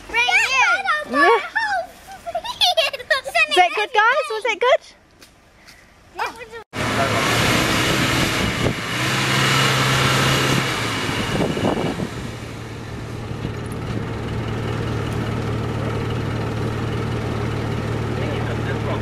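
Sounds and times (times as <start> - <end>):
off-road vehicle engine: 6.8 - 19.0.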